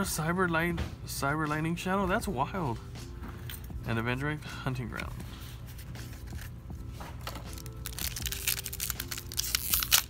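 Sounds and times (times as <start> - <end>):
foil wrapper crinkling and tearing: 7.2 - 10.0.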